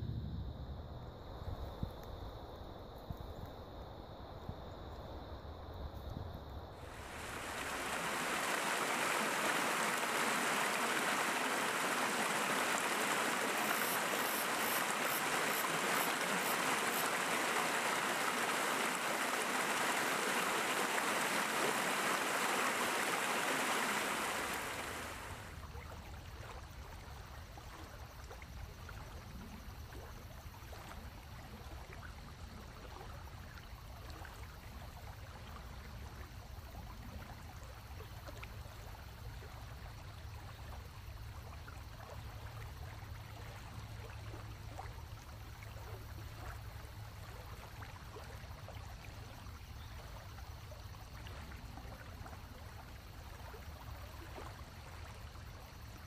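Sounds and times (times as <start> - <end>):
stream water rushing: 6.8 - 25.6.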